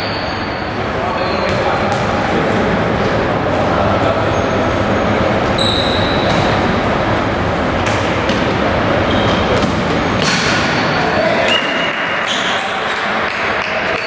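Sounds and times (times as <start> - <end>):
shoes squeaking on court: 0.0 - 2.2, 4.2 - 7.0, 7.7 - 10.4
loud sports hall din: 0.0 - 14.0
ball impacts: 9.5 - 10.7.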